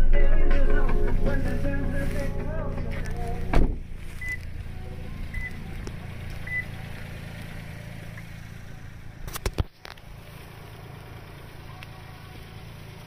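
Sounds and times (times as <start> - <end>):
low mechanical hum: 0.0 - 13.0
short high beeps: 4.2 - 4.4, 5.3 - 5.6.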